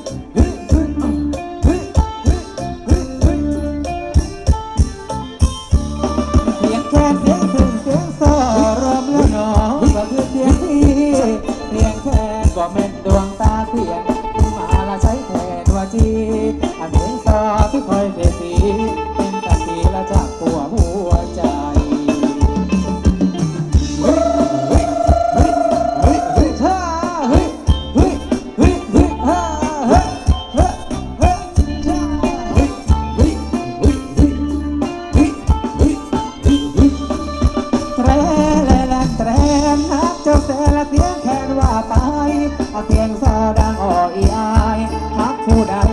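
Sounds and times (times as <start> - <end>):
dance band playing: 0.0 - 45.9
sustained melody: 0.0 - 45.9
quick drum beat: 19.5 - 29.2, 35.1 - 44.8.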